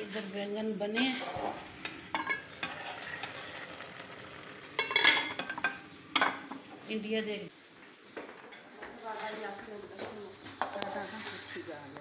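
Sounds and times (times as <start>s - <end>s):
food sizzling in a pan: 1.1s - 6.5s, 8.6s - 12.0s
pot lid and cookware clatter: 1.2s - 4.1s, 4.7s - 6.6s.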